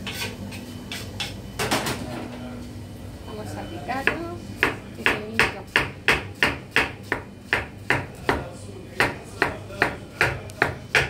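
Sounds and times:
knife chopping on cutting board: 0:04.1 - 0:11.0.

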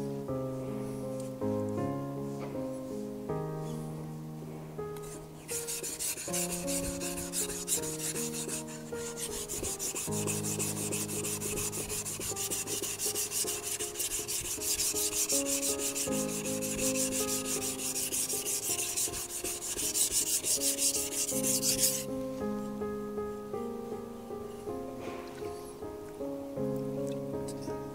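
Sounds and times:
soft background music: 0:00.0 - 0:27.9
knife scraping on whetstone: 0:05.5 - 0:22.0.

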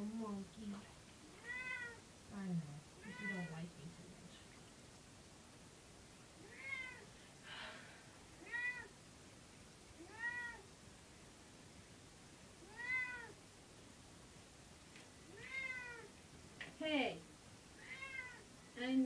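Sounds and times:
cat meowing: 0:01.3 - 0:02.0, 0:03.0 - 0:03.6, 0:06.4 - 0:07.1, 0:08.4 - 0:09.0, 0:10.0 - 0:10.7, 0:12.6 - 0:13.4, 0:15.3 - 0:16.1, 0:17.8 - 0:18.5.

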